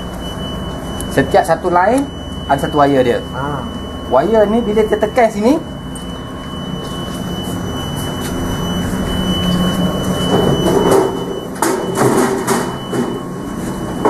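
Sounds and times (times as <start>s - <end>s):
vending machine mechanism humming: 0.0s - 14.0s
rattling and sharp knocks: 10.2s - 13.2s.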